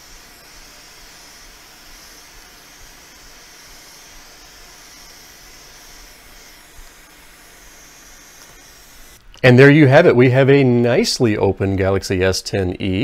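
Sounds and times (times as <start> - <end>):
hot air gun hissing: 0.0 - 9.4.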